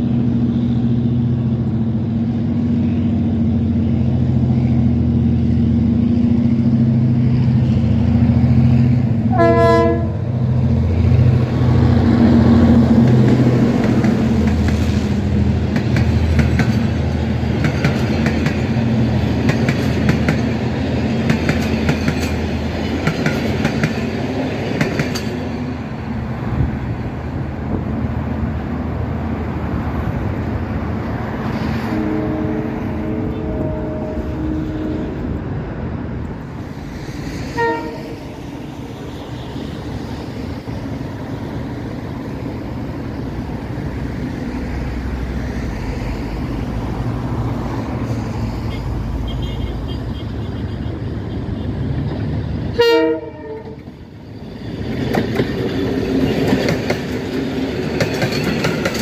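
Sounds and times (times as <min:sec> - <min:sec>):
locomotive engine droning: 0:00.0 - 0:49.3
train horn blast: 0:09.2 - 0:10.3, 0:31.7 - 0:35.4, 0:37.5 - 0:38.4, 0:52.7 - 0:53.9
train wheels clattering on rails: 0:11.5 - 0:26.0, 0:53.7 - 0:59.0.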